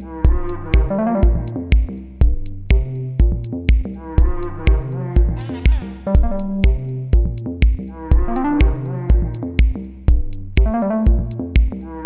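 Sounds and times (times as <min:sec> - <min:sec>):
synthesizer melody: 0:00.0 - 0:01.8, 0:04.2 - 0:07.2, 0:08.1 - 0:09.4, 0:10.6 - 0:11.5
drum machine beat: 0:00.0 - 0:12.0.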